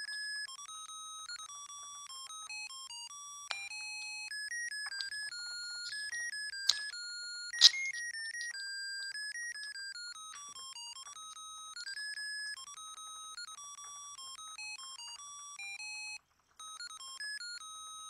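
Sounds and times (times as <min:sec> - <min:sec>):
sharp plastic clicks: 0:05.9 - 0:07.0.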